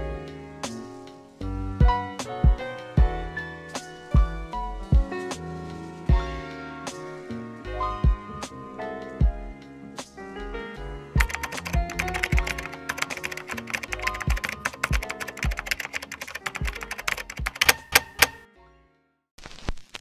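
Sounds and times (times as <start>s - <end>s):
background music: 0.0s - 18.9s
keyboard typing clicks: 11.2s - 18.4s.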